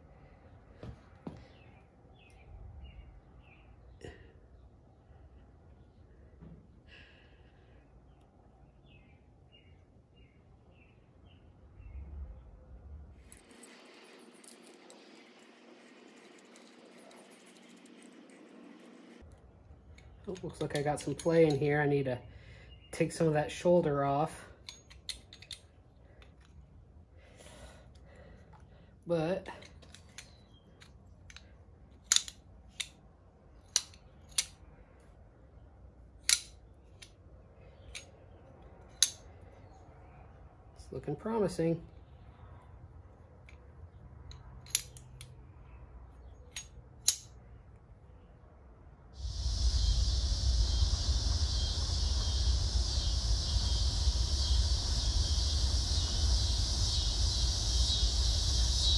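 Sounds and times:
flintlock hammer metallic clicks: 36.2 - 37.2, 46.5 - 47.3
high-pitched insect chorus: 49.2 - 58.9
wind rumbling on microphone: 49.2 - 58.9.

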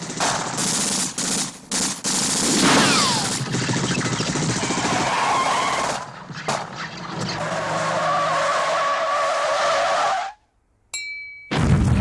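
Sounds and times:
car tyres screeching: 4.6 - 10.4.

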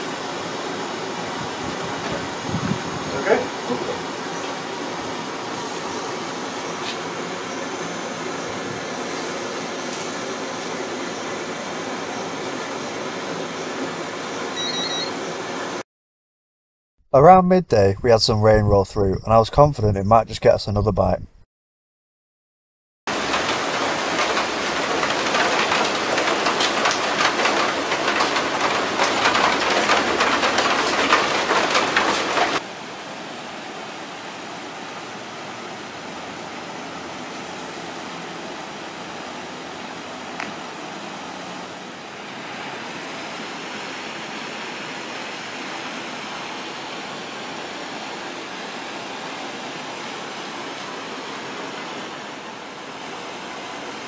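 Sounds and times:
heavy rain falling: 23.1 - 32.7.

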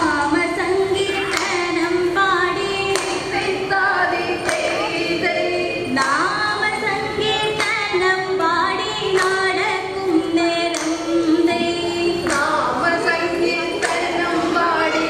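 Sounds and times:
woman singing into a microphone: 0.0 - 15.0.

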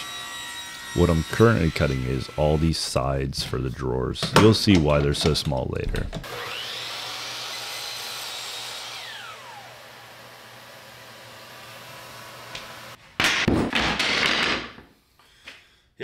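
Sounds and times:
miter saw whining and cutting: 0.0 - 3.0, 6.2 - 13.0.

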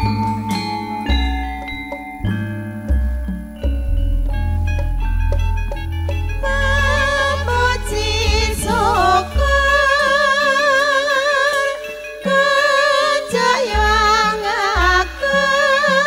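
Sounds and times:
band with low bass: 0.0 - 10.4
women singing with vibrato: 6.4 - 16.0.

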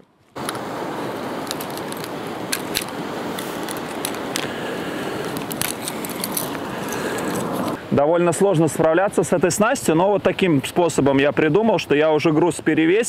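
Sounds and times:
rushing outdoor background noise: 0.0 - 13.0
fishing tackle clicking and rattling: 1.4 - 4.5, 5.2 - 7.8.

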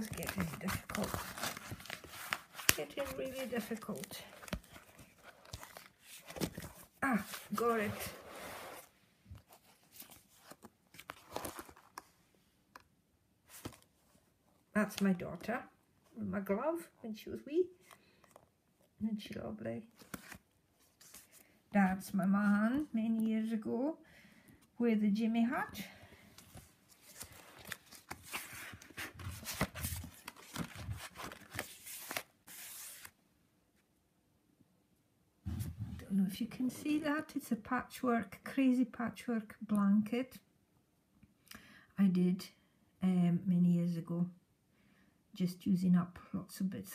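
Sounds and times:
faint paper crinkles and taps: 0.0 - 7.6, 26.4 - 33.1
paper pages rustling: 0.0 - 12.2, 13.5 - 14.2, 20.0 - 22.2, 26.4 - 33.2.

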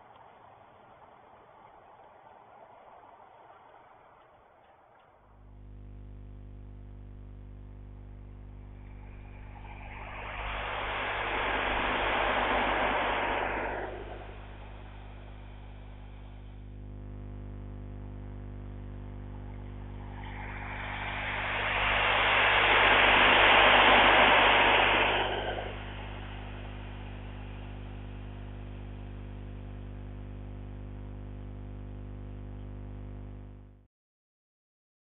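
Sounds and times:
low electrical hum: 0.0 - 33.8
diesel train passing: 8.8 - 16.6, 20.0 - 27.7.

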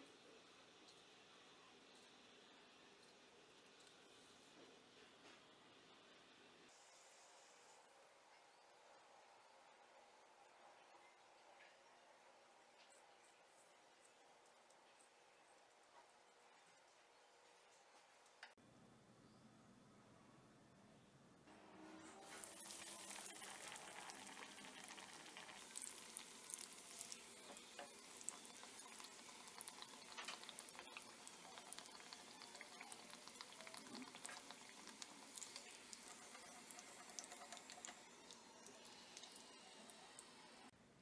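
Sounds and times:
food sizzling in hot oil: 22.2 - 40.6.

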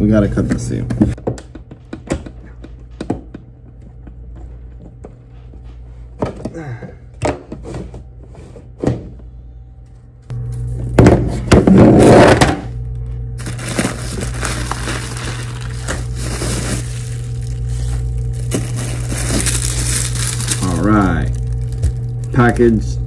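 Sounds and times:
steady low hum: 0.0 - 23.0
bubble wrap crinkling: 13.4 - 22.6.

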